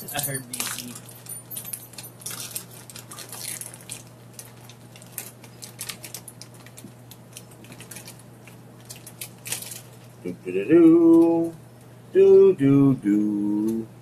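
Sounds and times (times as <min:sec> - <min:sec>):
plastic bag crinkling: 0:00.1 - 0:10.2.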